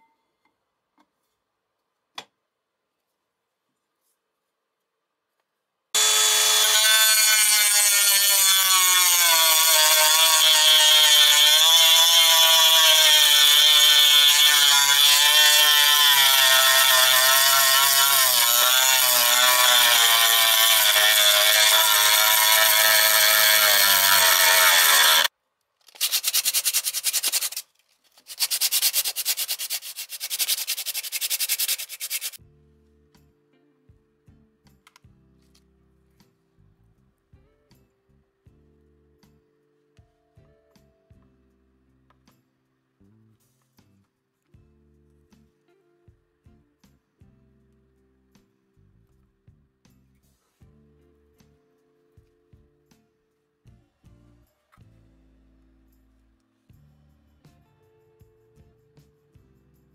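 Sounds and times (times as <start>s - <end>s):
hand sanding abrasive rubbing: 6.0s - 25.3s, 25.9s - 32.4s
rotary tool sanding metal: 6.0s - 25.3s, 25.9s - 32.4s.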